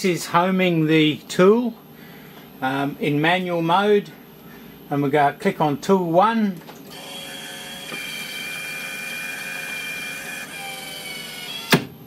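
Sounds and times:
lathe tool turret motor whine: 6.9s - 11.9s.

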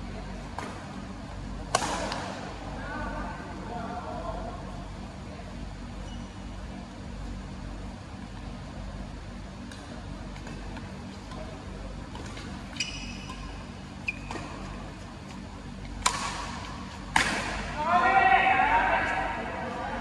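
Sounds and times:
steady low hum: 0.0s - 20.0s
racket hitting shuttlecock: 1.7s - 2.4s, 15.9s - 17.8s
brief squeaks: 12.7s - 13.3s.

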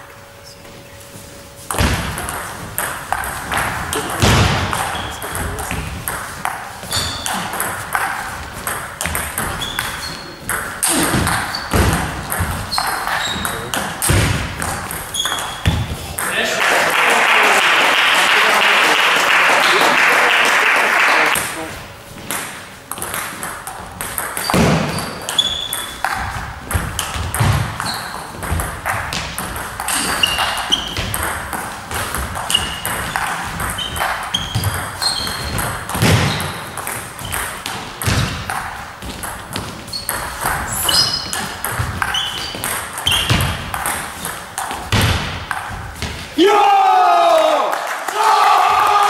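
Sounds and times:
shoes squeaking on floor: 4.7s - 5.9s, 6.8s - 13.9s, 15.0s - 16.2s, 24.3s - 29.2s, 29.8s - 31.4s, 32.2s - 38.3s, 39.0s - 44.4s.

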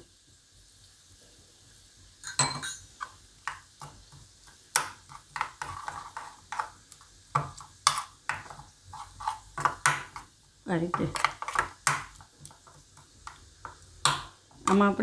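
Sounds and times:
spoon clinks: 2.2s - 2.9s
spoon stirring and scraping bowl: 2.2s - 15.0s.

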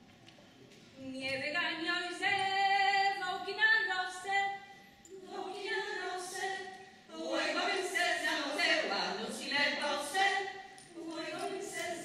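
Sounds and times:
women's choir singing: 5.1s - 12.0s.

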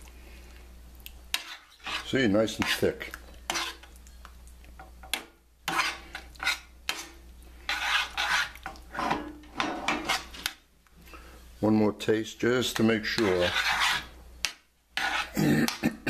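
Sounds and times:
metal spoon scraping a pan: 1.3s - 3.9s, 5.0s - 10.6s, 12.7s - 15.4s.

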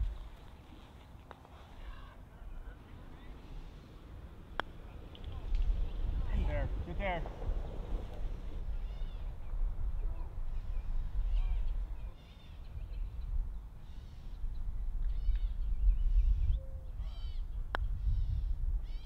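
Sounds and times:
wind rumble on microphone: 0.0s - 0.5s, 1.8s - 19.0s
bird calling: 8.6s - 13.2s.

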